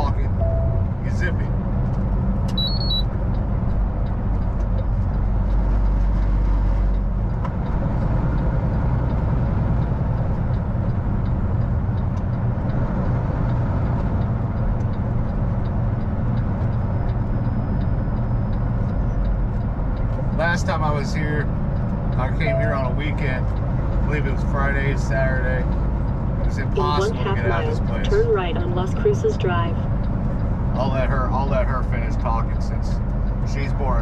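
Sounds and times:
truck engine drone: 0.0 - 34.0
tyre and road noise: 0.0 - 34.0
high beep: 0.4 - 0.9, 2.5 - 3.1, 22.4 - 22.8, 26.5 - 29.8.

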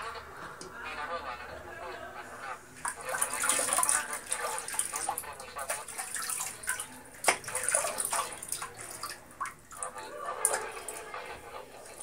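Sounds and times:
water running and splashing: 2.8 - 12.0.

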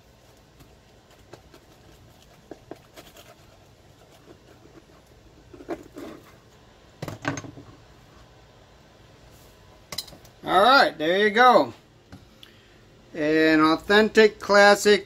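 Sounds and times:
crunch and clatter of sandwich halves: 0.2 - 6.4.

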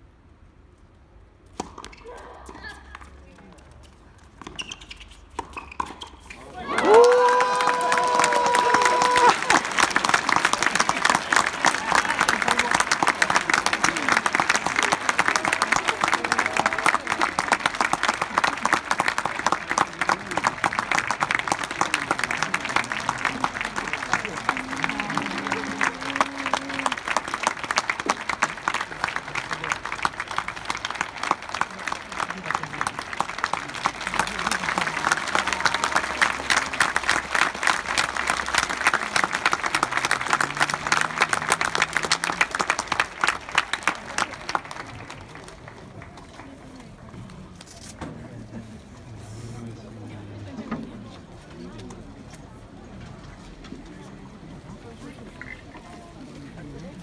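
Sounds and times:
spectators applauding: 6.6 - 46.8.

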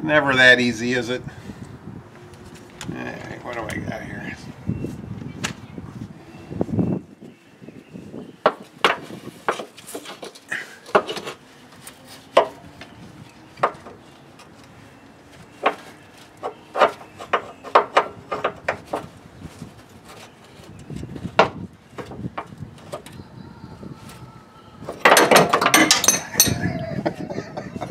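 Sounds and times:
metal clicks and knocks from tools: 25.1 - 26.6.

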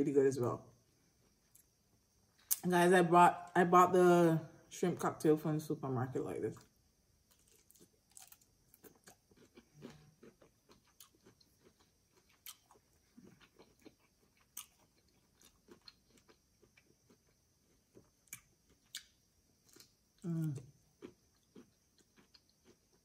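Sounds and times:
faint chewing: 6.6 - 23.0.

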